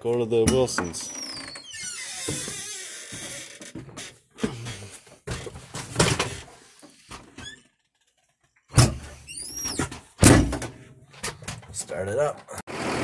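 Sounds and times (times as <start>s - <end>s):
loud thud: 10.2s - 10.7s.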